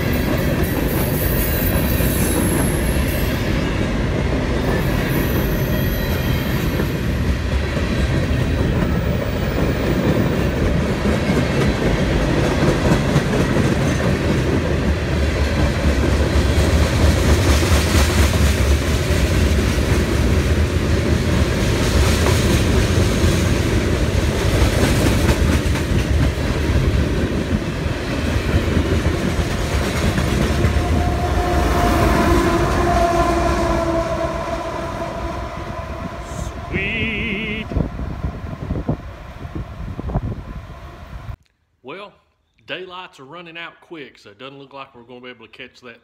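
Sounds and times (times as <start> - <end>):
train wheels rumbling and rattling: 0.0 - 36.5
locomotive horn: 30.6 - 37.7.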